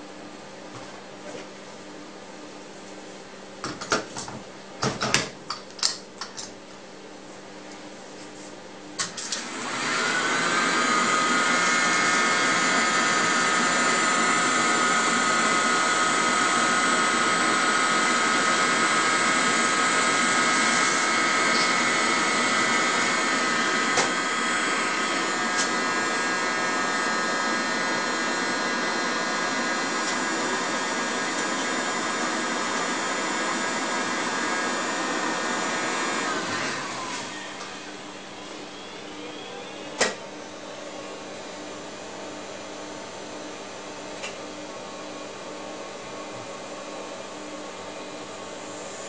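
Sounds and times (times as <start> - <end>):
tape recorder rising whine: 10.5 - 40.8.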